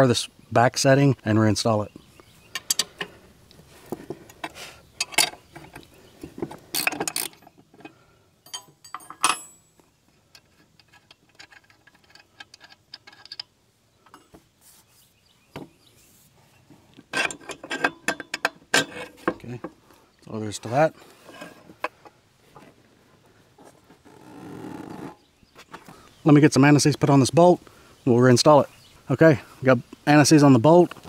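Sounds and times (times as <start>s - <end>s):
metallic clinks and knocks: 4.3s - 14.3s, 17.1s - 19.4s.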